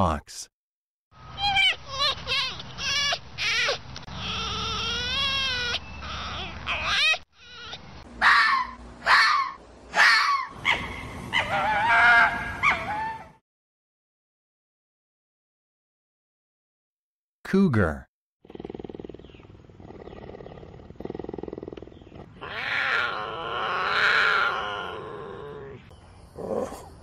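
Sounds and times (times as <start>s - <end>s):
fox yelping and calling: 1.4s - 13.4s, 22.2s - 25.9s.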